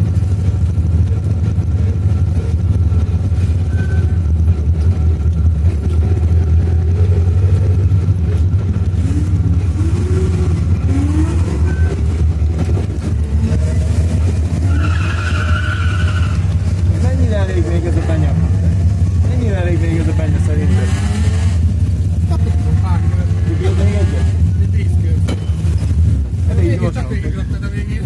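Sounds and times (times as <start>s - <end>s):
car engine running at low revs: 0.0s - 28.0s
high squeal: 3.6s - 4.4s, 11.2s - 12.2s, 14.6s - 16.6s.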